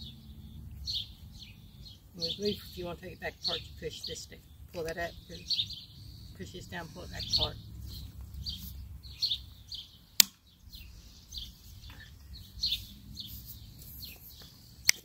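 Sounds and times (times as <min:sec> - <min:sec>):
small birds chirping: 0:00.0 - 0:15.0
sharp click of tiller shaft: 0:10.2 - 0:10.4.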